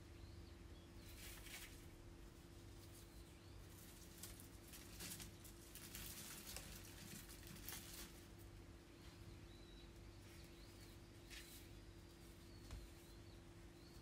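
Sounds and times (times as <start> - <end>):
low steady hum: 0.0 - 14.0
dried flower stems rustling: 1.0 - 14.0.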